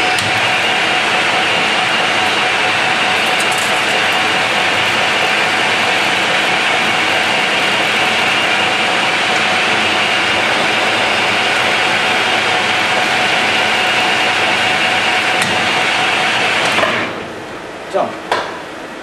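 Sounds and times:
lathe tool cutting metal: 0.0 - 16.8
metal lathe whining: 0.0 - 16.8.

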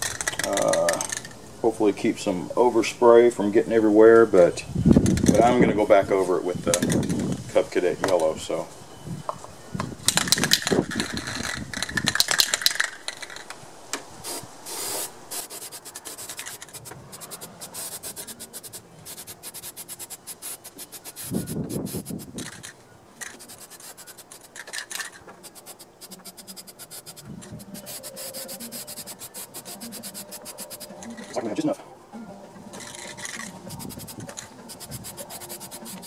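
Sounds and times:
spray can rattling when shaken: 10.1 - 13.5, 14.3 - 31.4, 32.8 - 36.0.

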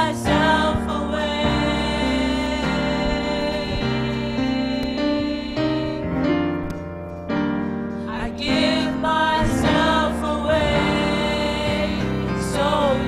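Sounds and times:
sustained keyboard chords: 0.0 - 13.0
solo voice singing: 8.1 - 13.0.

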